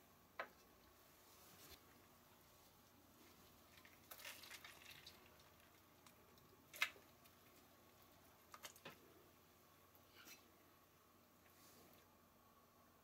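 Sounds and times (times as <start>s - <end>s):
soft wet rustling: 0.7s - 10.5s.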